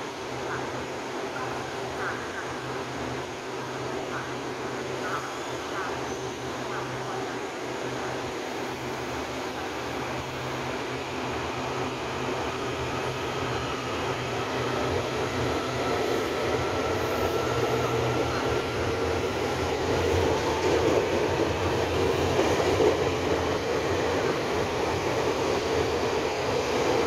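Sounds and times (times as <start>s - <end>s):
electric train passing: 0.0s - 27.0s.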